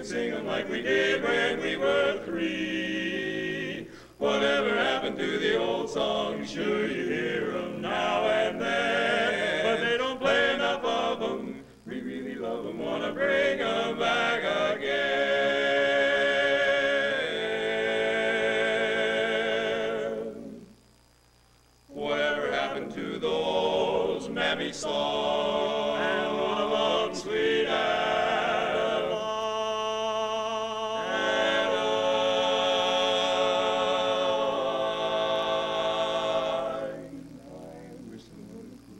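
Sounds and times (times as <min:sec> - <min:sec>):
male quartet singing a cappella: 0:00.0 - 0:20.7, 0:21.9 - 0:38.9.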